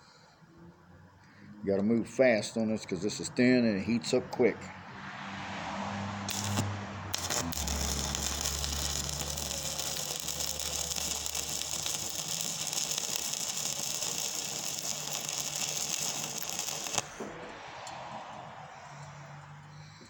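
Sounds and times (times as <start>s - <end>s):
welding arc crackling: 6.3s - 17.2s.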